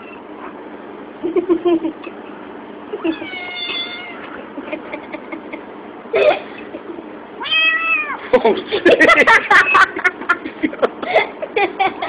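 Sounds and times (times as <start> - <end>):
kitten meow-growling: 3.1 - 4.3, 7.4 - 8.2.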